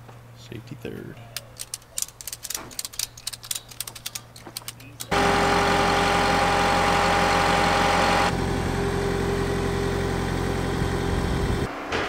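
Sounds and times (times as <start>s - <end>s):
motor humming: 4.7s - 11.7s.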